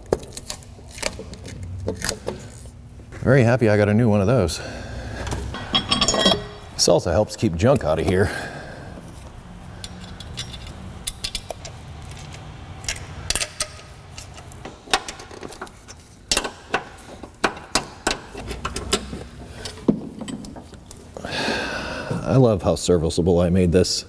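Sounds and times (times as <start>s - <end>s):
low steady hum: 0.0s - 24.0s
metal tools clinking: 5.5s - 6.7s, 9.8s - 16.7s.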